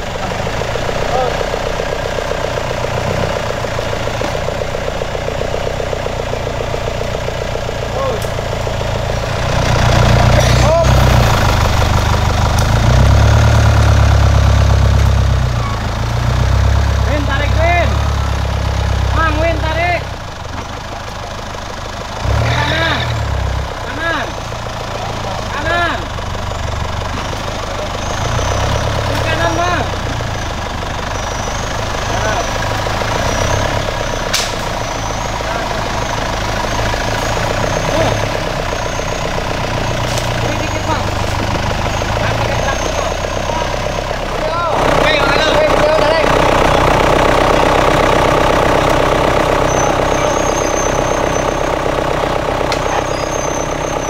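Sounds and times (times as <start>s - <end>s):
engine running at low revs: 0.0s - 54.0s
faint high chirp: 34.2s - 36.8s
sharp click: 34.3s - 34.6s.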